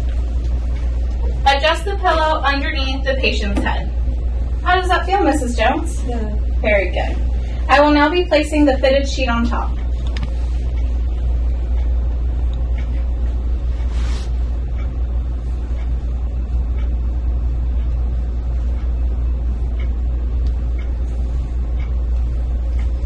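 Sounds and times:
low background rumble: 0.0s - 23.0s
bed linen rustling: 13.8s - 14.4s.

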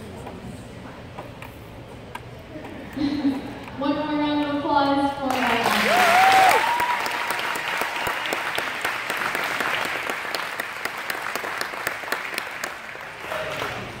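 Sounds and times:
audience applauding: 5.3s - 14.0s
crowd cheering: 5.4s - 14.0s.

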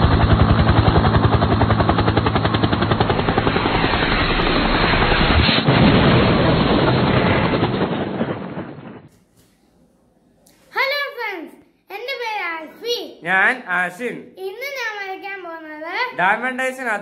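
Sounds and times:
fast even pulsing: 0.0s - 9.1s
whoosh: 3.0s - 9.1s.

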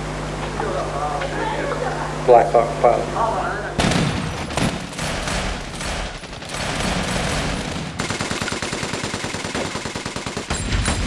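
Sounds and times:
machine-gun fire: 3.8s - 11.0s.

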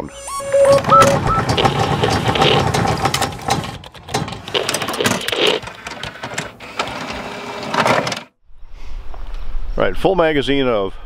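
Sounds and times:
mechanical clicks and ratcheting: 0.8s - 6.5s.

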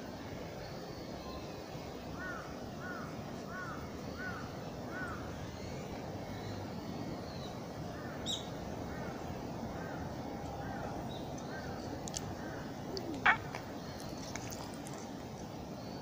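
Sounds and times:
crow cawing: 12.4s - 13.7s.

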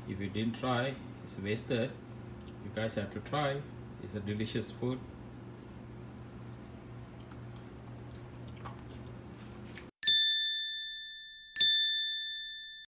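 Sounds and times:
low room hum: 0.0s - 9.9s
bright ding chimes: 10.0s - 12.9s.

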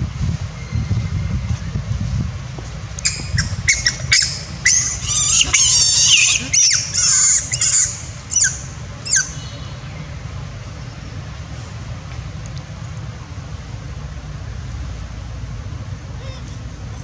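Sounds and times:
monkey screaming: 3.0s - 9.4s.

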